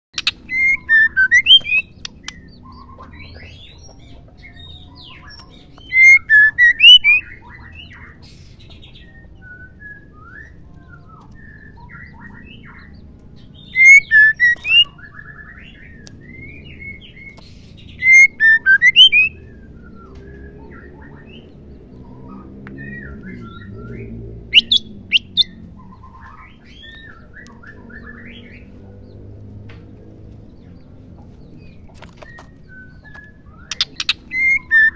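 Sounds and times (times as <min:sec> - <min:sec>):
bird whistled chirps: 0:00.2 - 0:03.7, 0:04.6 - 0:08.1, 0:09.0 - 0:12.9, 0:13.6 - 0:17.2, 0:17.9 - 0:21.4, 0:22.8 - 0:25.5, 0:32.2 - 0:34.9.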